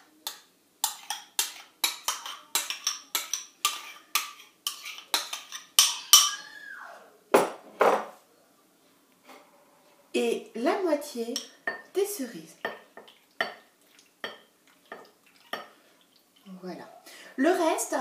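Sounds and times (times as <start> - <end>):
metal spoon scraping a bowl: 0.8 - 6.4.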